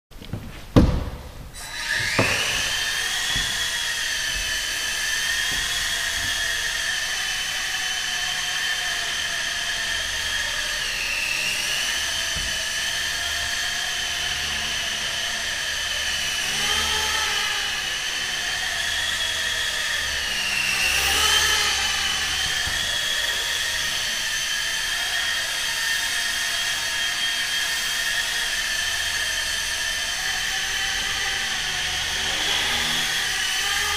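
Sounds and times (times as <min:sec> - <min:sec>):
knocks: 0:00.3 - 0:04.5
small motor whining: 0:01.6 - 0:33.9.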